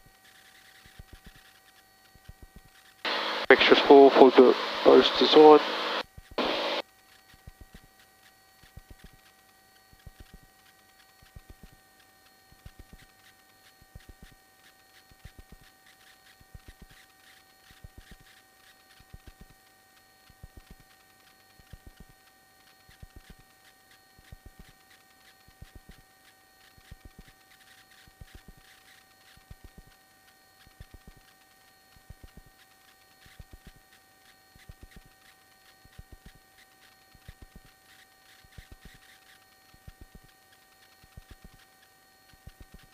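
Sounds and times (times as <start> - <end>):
faint electrical hum: 0.0 - 42.9
crackling radio clicks: 3.1 - 6.8
high-pitched radio tones: 3.1 - 6.8.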